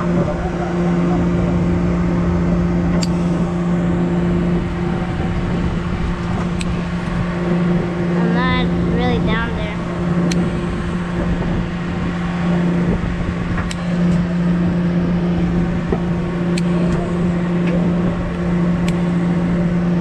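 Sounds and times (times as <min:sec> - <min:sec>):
boat engine droning: 0:00.0 - 0:20.0
sharp clicks: 0:06.2 - 0:07.2.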